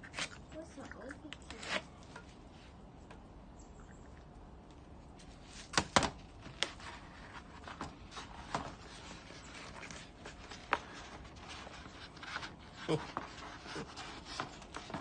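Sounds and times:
cardboard wrapping rustling: 5.2s - 15.0s.

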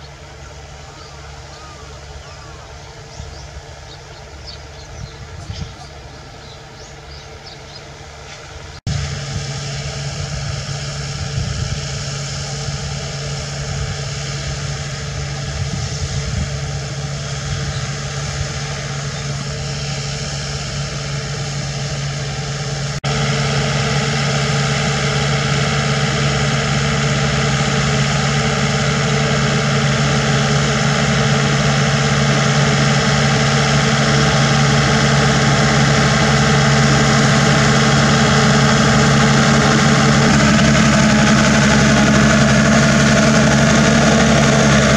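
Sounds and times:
diesel tractor engine running: 0.0s - 44.9s
rotary implement turning soil: 27.2s - 44.9s.

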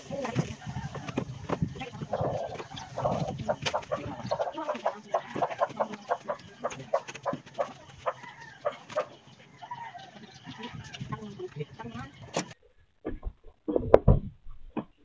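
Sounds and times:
chickens clucking: 0.0s - 14.2s.

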